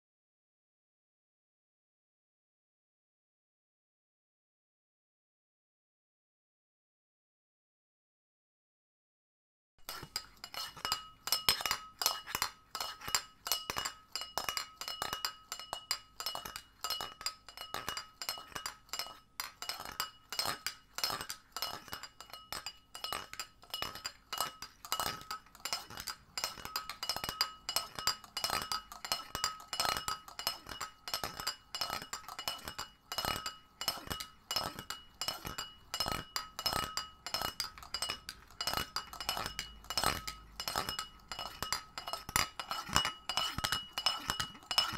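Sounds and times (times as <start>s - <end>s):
glass tapped and clinking: 9.8s - 44.9s.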